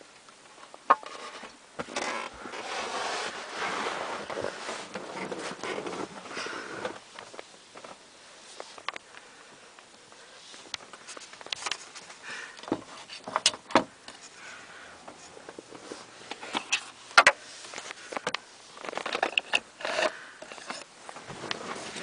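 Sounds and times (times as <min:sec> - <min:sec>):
rustling: 0:00.5 - 0:22.0
handling clicks and knocks: 0:15.1 - 0:22.0.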